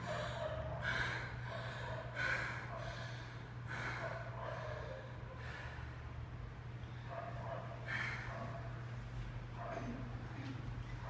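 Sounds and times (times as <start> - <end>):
people breathing heavily: 0.0 - 8.8
steady low hum: 0.0 - 11.0.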